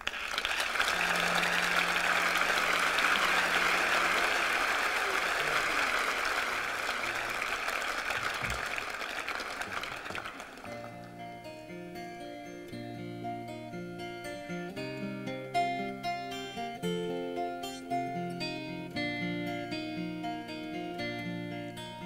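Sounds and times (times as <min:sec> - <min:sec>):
audience applauding: 0:00.0 - 0:11.4
acoustic guitar playing: 0:00.9 - 0:05.0, 0:10.6 - 0:22.0.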